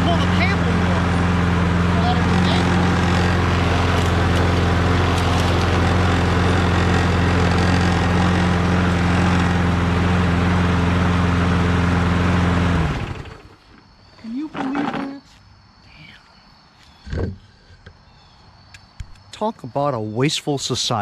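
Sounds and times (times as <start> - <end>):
lawn mower engine running: 0.0 - 13.8.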